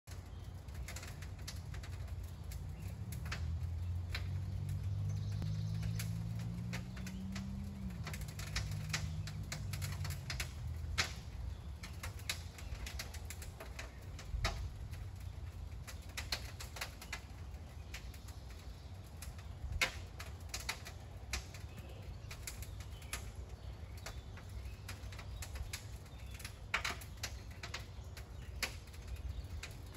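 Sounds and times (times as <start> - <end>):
sharp clicks and ticks: 0.1 - 29.9
steam engine low rumble: 0.5 - 11.8.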